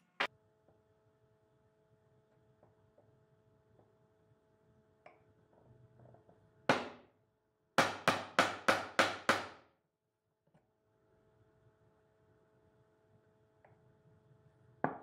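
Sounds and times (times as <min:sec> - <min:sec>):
hammer striking chisel: 0:06.7 - 0:07.0, 0:07.8 - 0:09.6.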